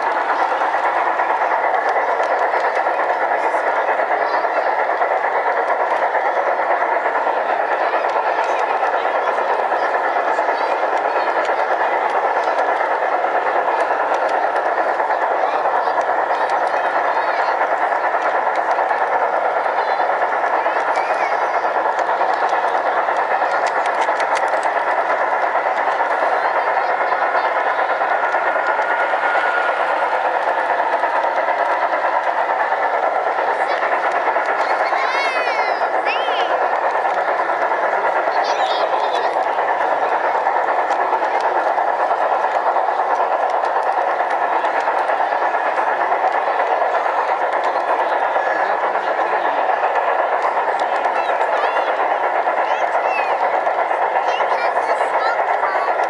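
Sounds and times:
model train motor whirring: 0.0 - 56.0
sharp clicks: 21.8 - 34.9.

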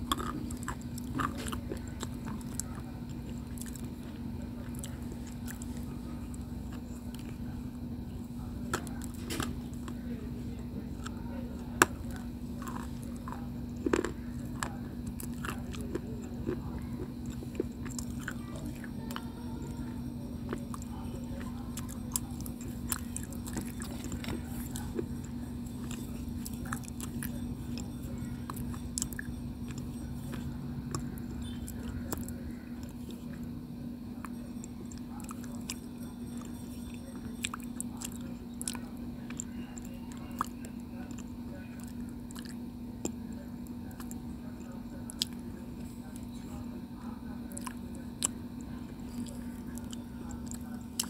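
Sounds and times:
teeth crunching stone: 0.0 - 3.9, 11.8 - 18.8
steady low hum: 0.0 - 51.0.

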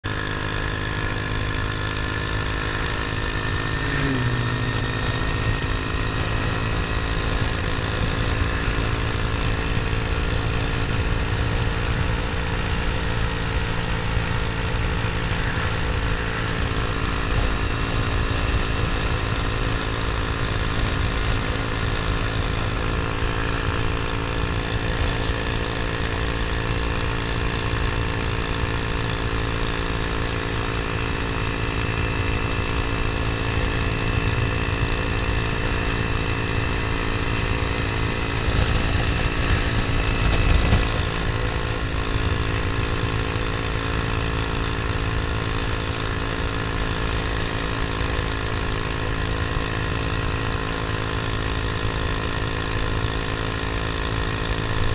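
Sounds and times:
motor scooter engine running: 0.0 - 54.9
wind rumbling on microphone: 37.4 - 42.7.

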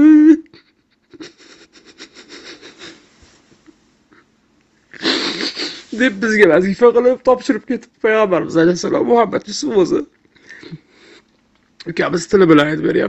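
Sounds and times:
man speaking: 5.9 - 10.1.

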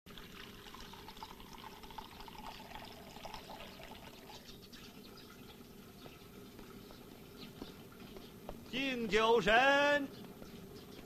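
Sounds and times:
liquid pouring into jar: 0.1 - 4.5.

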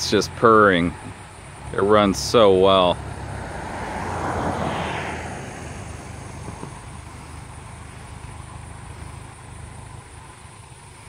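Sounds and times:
tractor engine running: 0.0 - 11.0.

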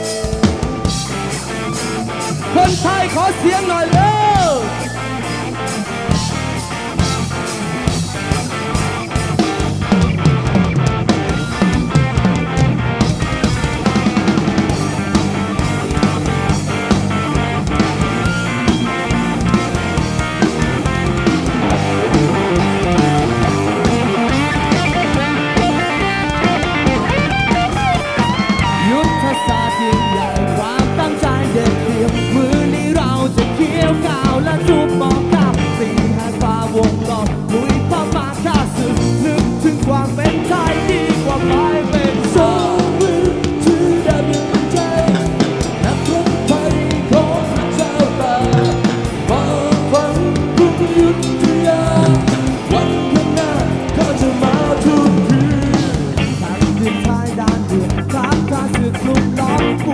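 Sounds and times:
drum kit beat: 0.0 - 59.9
electric guitar: 0.0 - 59.9
person singing: 2.5 - 4.9, 22.0 - 59.9.

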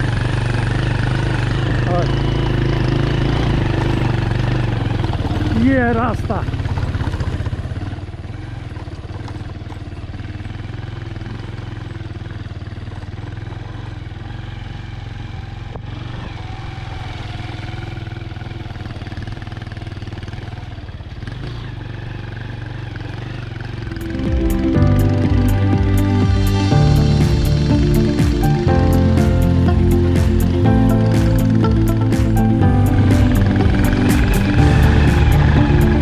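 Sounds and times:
motorcycle engine running: 0.0 - 36.0
music: 23.8 - 36.0.

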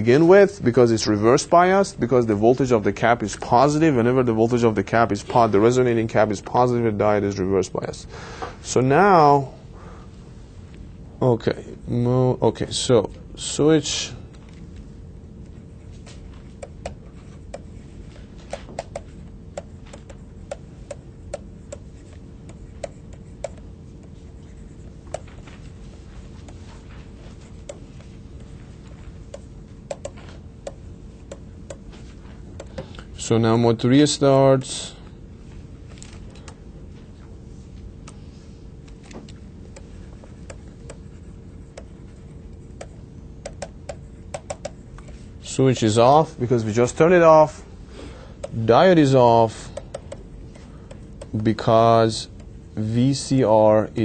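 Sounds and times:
low steady hum: 0.0 - 54.0
stylus clicking on tablet screen: 18.5 - 23.6, 25.1 - 25.4, 29.3 - 31.8, 42.8 - 45.2, 49.7 - 50.2.

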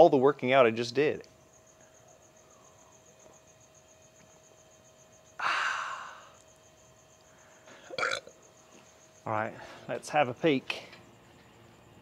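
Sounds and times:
man sighing ahh: 5.4 - 6.4.

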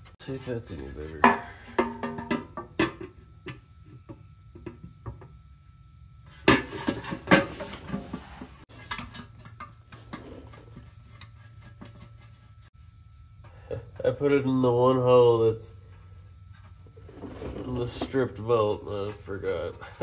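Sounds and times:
metal clanks: 0.8 - 5.3, 6.4 - 12.6.

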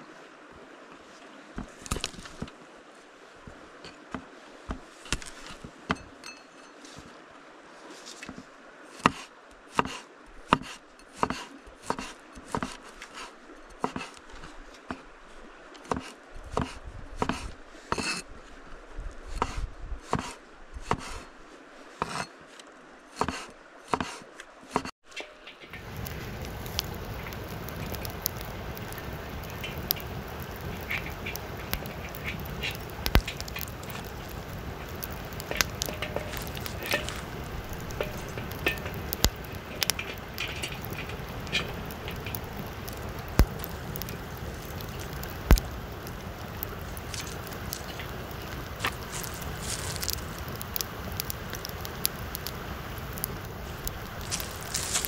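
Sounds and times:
stream flowing: 0.0 - 19.4, 20.2 - 55.0
campfire crackling: 1.6 - 2.6, 3.5 - 6.9, 25.0 - 55.0
steel wok clinking: 25.1 - 42.6.

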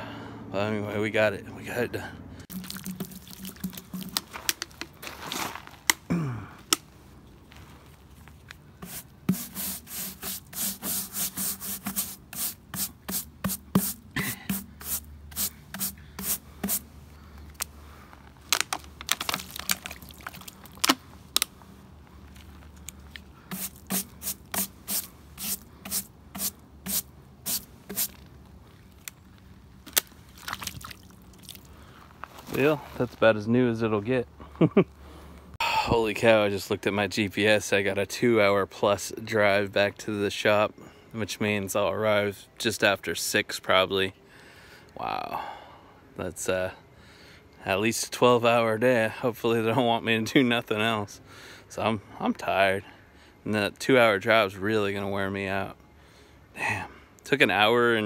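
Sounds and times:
stiff brush scrubbing: 2.5 - 5.4, 8.8 - 17.0, 23.5 - 28.2.

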